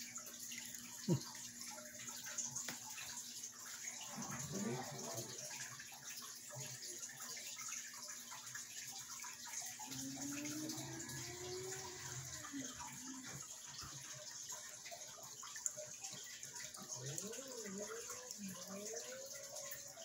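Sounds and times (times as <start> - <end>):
water splashing and trickling: 0.0 - 20.0.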